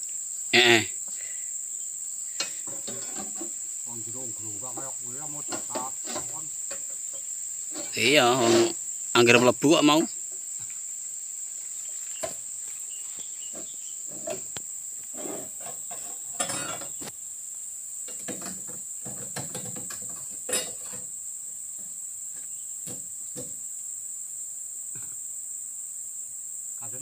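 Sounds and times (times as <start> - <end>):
insects droning: 0.0 - 27.0
knocks and thumps: 2.4 - 3.6, 4.7 - 8.8, 12.2 - 12.5, 18.0 - 23.6.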